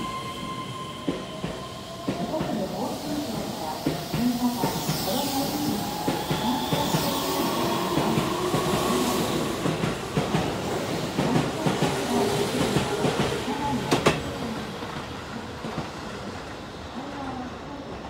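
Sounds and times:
train wheels clattering on rails: 7.9 - 16.5.

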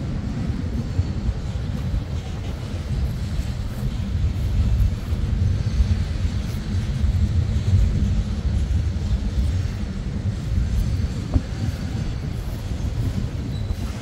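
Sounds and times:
freight train cars rolling past: 0.0 - 14.0.

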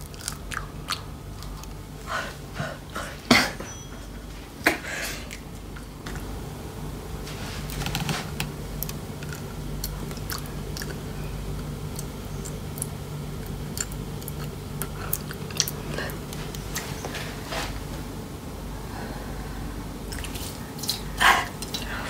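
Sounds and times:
teeth crunching chicken bones: 0.0 - 1.8, 9.2 - 11.1
steady low hum: 0.0 - 22.0.

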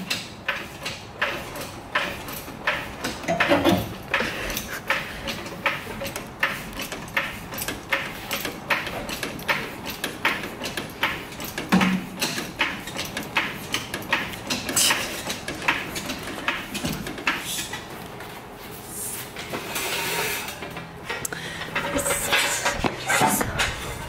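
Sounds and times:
heavy clunk: 0.0 - 14.7
jack clicking: 0.0 - 18.0.

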